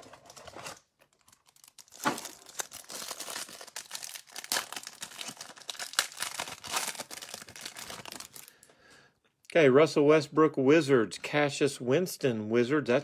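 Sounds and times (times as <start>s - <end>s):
plastic wrapper crinkling and tearing: 0.0s - 8.7s.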